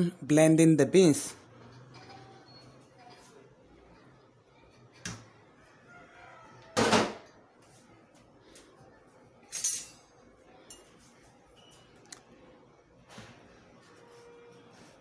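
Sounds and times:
kitchenware clattering: 6.8 - 7.3, 9.5 - 11.1.

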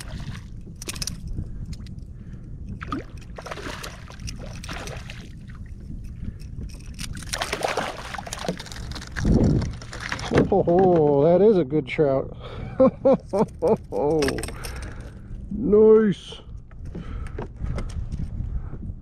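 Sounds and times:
steady low rumble: 0.0 - 19.0
fish thrashing and splashing: 2.8 - 5.6, 6.7 - 10.4.

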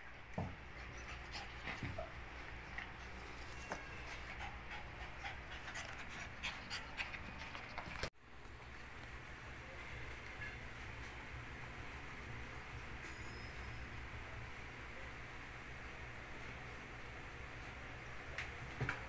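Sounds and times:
puppy panting: 0.6 - 3.0, 3.8 - 8.1
puppies clicking and scuffing: 2.7 - 8.1.

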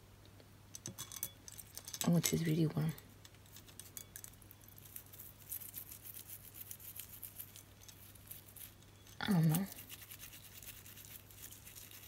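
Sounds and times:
brush scrubbing bracelet: 4.9 - 8.8, 9.5 - 12.0.

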